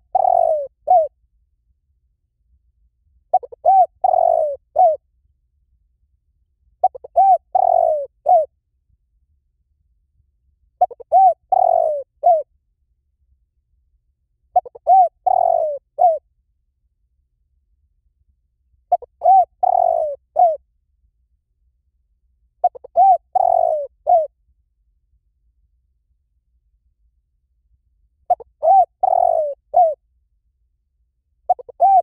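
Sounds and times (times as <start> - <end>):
dove cooing: 0.0 - 1.1, 3.3 - 5.0, 6.8 - 8.5, 10.8 - 12.5, 14.5 - 16.2, 18.9 - 20.6, 22.6 - 24.3, 28.3 - 30.0, 31.5 - 32.0.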